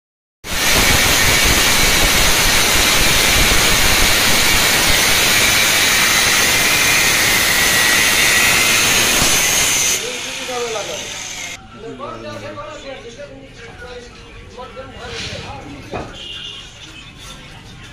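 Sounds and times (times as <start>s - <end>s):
angle grinder cutting steel bar: 0.5s - 11.6s.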